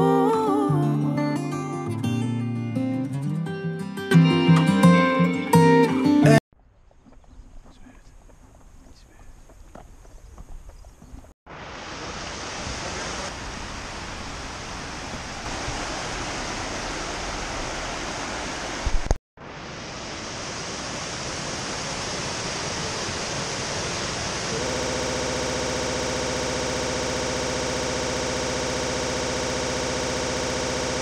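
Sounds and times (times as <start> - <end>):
stream and waterfall rushing: 11.5 - 24.6.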